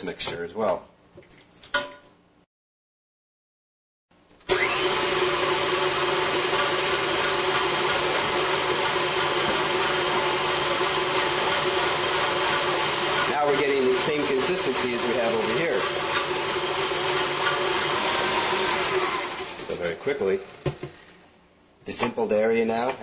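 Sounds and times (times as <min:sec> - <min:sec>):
stand mixer motor running: 0:04.5 - 0:21.1.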